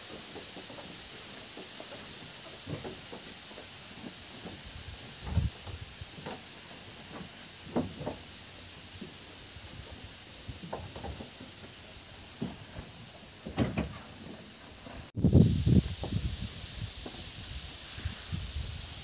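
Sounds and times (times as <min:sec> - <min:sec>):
steady hiss: 0:00.0 - 0:19.0
footsteps on wooden boards: 0:00.1 - 0:15.1.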